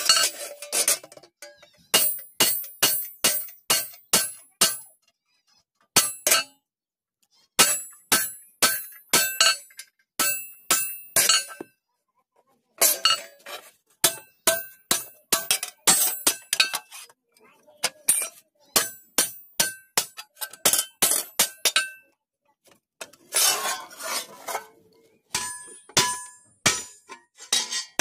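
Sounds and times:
hammer striking chisel on metal: 1.9 - 4.9, 6.0 - 6.6, 7.6 - 11.7, 14.0 - 17.0, 17.9 - 22.0, 25.3 - 28.0.

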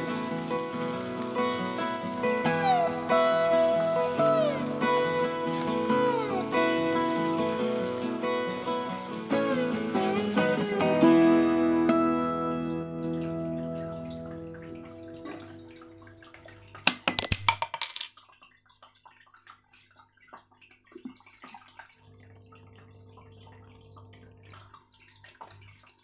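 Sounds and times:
food sizzling on hot plate: 0.0 - 11.4
guitar music: 0.0 - 15.8.

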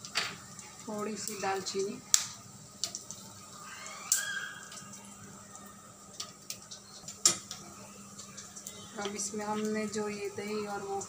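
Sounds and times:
spices sizzling in hot oil: 0.0 - 11.0
cinnamon stick cracking: 2.1 - 3.2.

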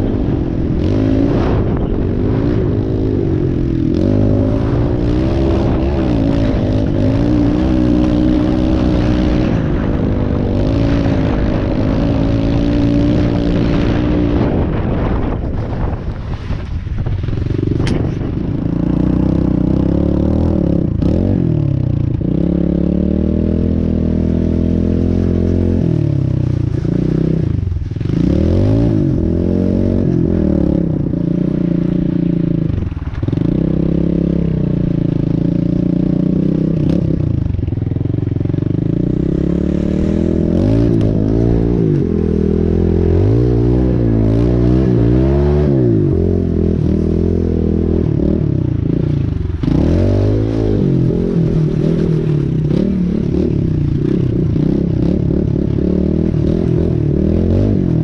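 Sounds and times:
wind rushing: 0.0 - 19.9
gravel noise: 0.0 - 58.0
motorbike engine running: 0.0 - 58.0.

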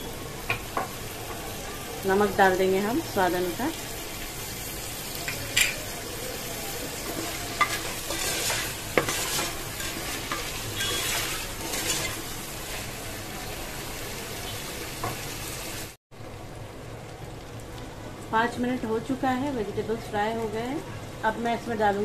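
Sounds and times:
vegetables sizzling in hot oil: 0.0 - 22.0
stirring and scraping in pan: 4.2 - 13.1.

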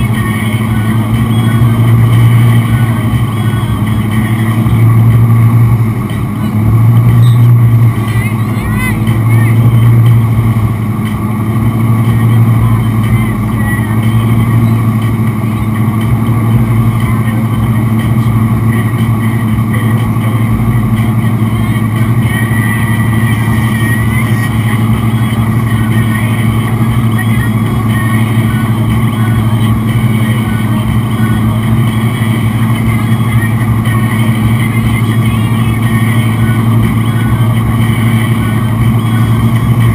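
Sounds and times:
boat engine humming: 0.0 - 39.9.

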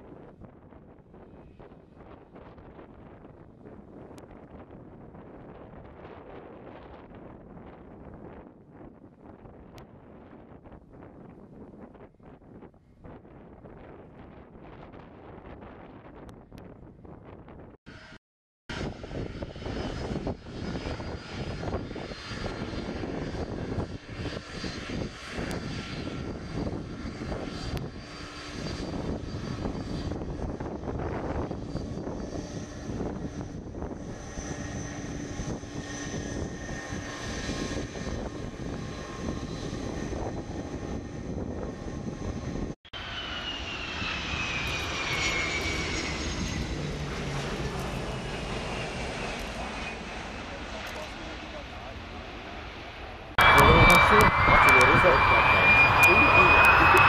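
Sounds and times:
jet engines rumbling: 13.0 - 57.0
jet taking off: 17.9 - 57.0.

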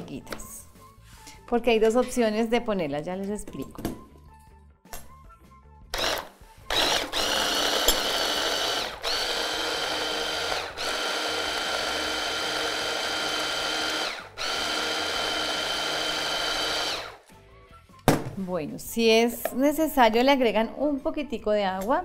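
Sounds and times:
hand blender motor whining: 6.0 - 17.2.

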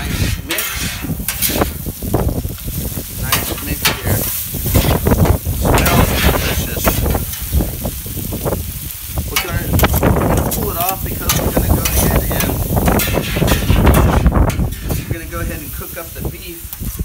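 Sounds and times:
metal spatulas scraping griddle: 0.0 - 2.1, 3.2 - 7.5, 9.4 - 16.2
meat sizzling on a griddle: 0.0 - 17.0.

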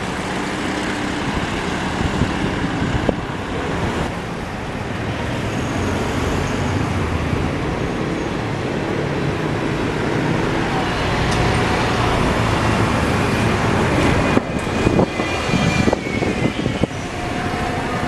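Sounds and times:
buses passing by: 0.0 - 18.0
wind buffeting: 0.0 - 18.0.

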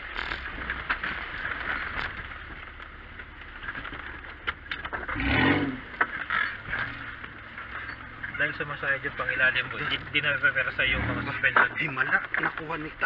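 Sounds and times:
vehicle engine running: 0.0 - 13.0
engine revving: 4.9 - 11.7.

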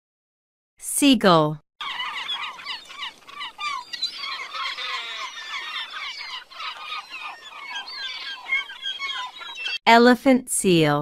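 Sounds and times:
gulls calling: 1.8 - 9.8.

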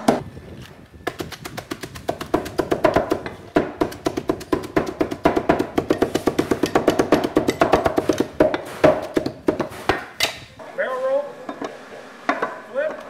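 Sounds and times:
cleavers chopping on wooden block: 1.0 - 10.4.

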